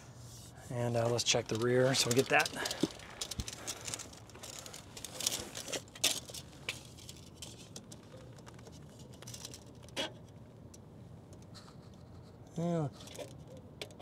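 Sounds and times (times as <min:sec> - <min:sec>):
tape measure rustles and clicks: 0:01.0 - 0:10.0.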